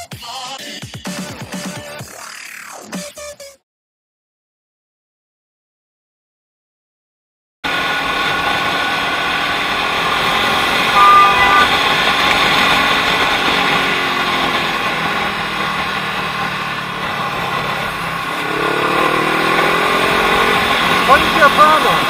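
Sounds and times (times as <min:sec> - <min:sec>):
motorcycle engine revving: 0:07.7 - 0:22.0
wind and road noise: 0:07.7 - 0:22.0.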